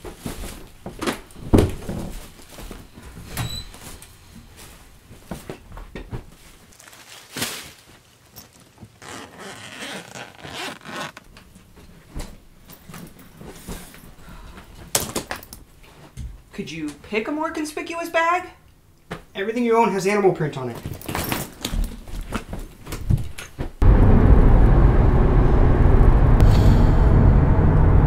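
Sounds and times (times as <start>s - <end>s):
clothes and bag fabric rustling: 0.0s - 15.0s
zipper pulled: 9.0s - 11.3s.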